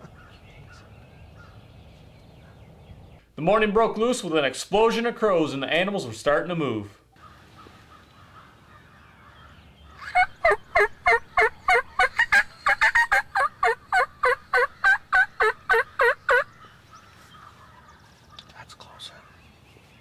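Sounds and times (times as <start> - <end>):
turkey call yelping: 9.9 - 16.7.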